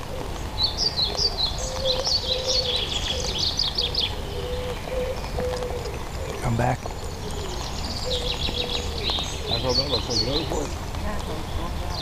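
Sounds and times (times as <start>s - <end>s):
songbird twittering: 0.0s - 12.0s
pigeon cooing: 1.7s - 10.6s.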